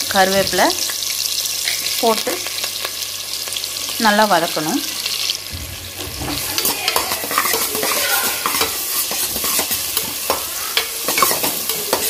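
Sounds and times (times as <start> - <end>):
vegetables sizzling in hot oil: 0.0 - 12.0
spatula scraping a pan: 5.9 - 12.0.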